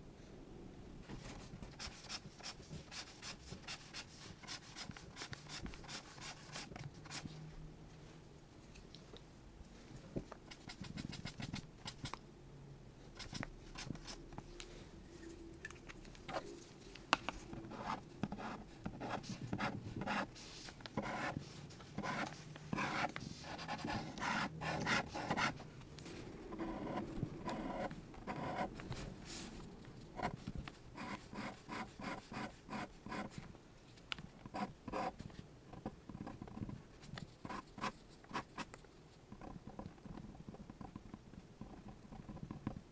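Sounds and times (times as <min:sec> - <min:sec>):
pen scratching on paper: 0:01.4 - 0:07.3, 0:10.4 - 0:12.2, 0:17.6 - 0:25.6, 0:26.5 - 0:28.8, 0:31.0 - 0:33.4.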